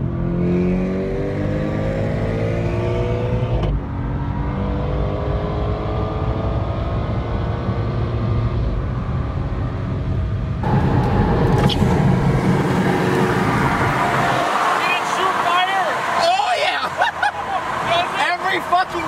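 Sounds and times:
car engine accelerating: 0:00.0 - 0:19.0
road noise: 0:00.0 - 0:19.0
wind rush: 0:09.7 - 0:18.2.

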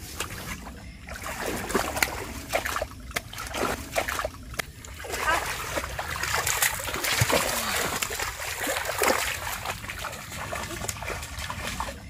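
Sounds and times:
feet wading through muddy water: 0:00.0 - 0:12.0
water splashing: 0:00.0 - 0:12.0
water trickling: 0:00.0 - 0:12.0.

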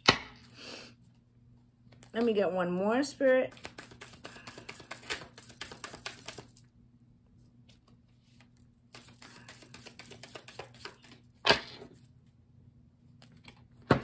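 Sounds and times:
cards shuffling: 0:03.2 - 0:06.6, 0:07.7 - 0:12.1.

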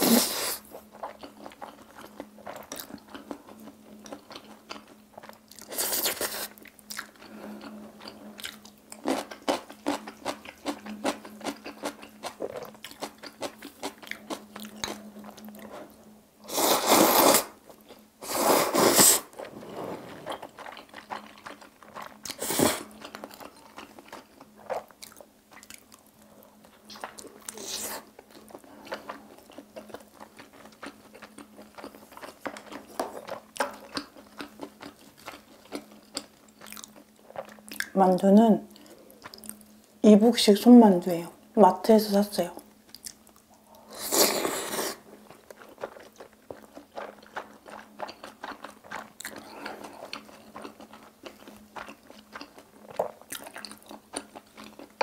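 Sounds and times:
wet chewing and mouth clicks: 0:00.8 - 0:15.8, 0:20.3 - 0:26.0, 0:26.6 - 0:38.0, 0:38.7 - 0:39.7, 0:42.9 - 0:55.0
noodle slurps: 0:16.5 - 0:17.5, 0:18.2 - 0:21.0.

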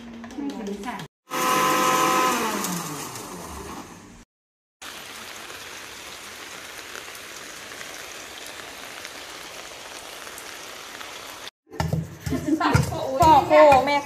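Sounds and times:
blender motor winding down: 0:01.3 - 0:04.2
steady rain-like hiss: 0:04.8 - 0:11.5.

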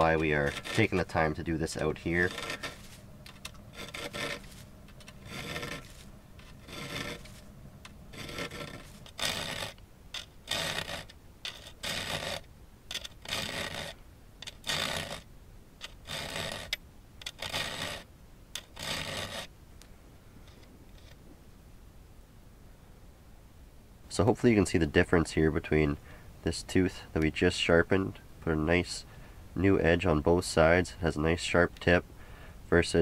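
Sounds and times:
file stroking saw teeth: 0:00.0 - 0:19.5.

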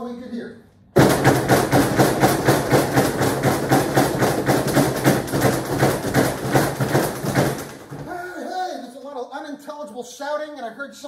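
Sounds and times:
pounding on doors and walls: 0:01.0 - 0:08.2.

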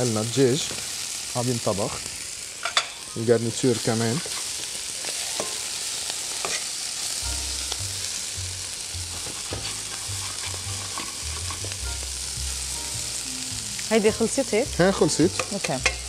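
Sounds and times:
vegetables sizzling in a frying pan: 0:00.0 - 0:16.0
metal tongs clicking against pan: 0:15.3 - 0:16.0.

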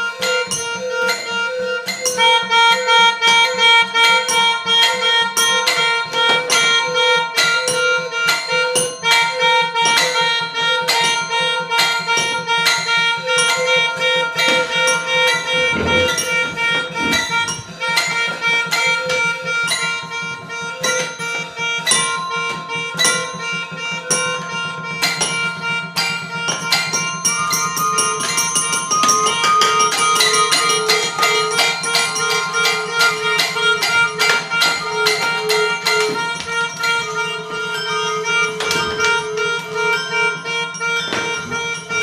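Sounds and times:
melodica holding tones: 0:00.0 - 0:42.0
toy glockenspiel notes: 0:00.0 - 0:42.0
toy piano notes: 0:00.0 - 0:42.0
synthesizer tones: 0:13.2 - 0:26.0.

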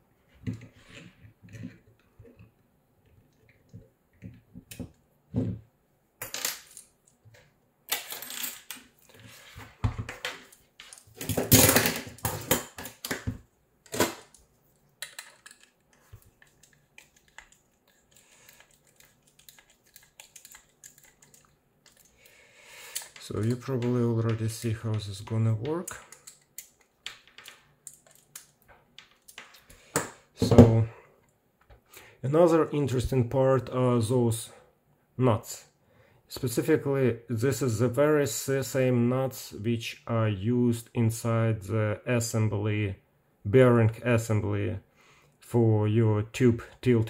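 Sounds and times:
parts rattling and clattering: 0:10.0 - 0:13.2
plastic and metal parts clicking: 0:15.0 - 0:22.1, 0:22.9 - 0:25.1, 0:25.9 - 0:29.6.

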